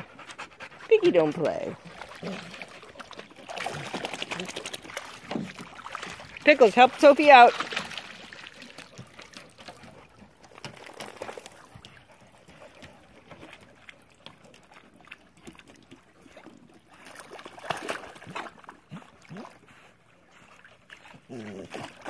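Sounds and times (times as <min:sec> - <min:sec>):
water sloshing against dock: 0:00.0 - 0:22.0
dog splashing into water: 0:01.4 - 0:14.8, 0:16.9 - 0:19.6.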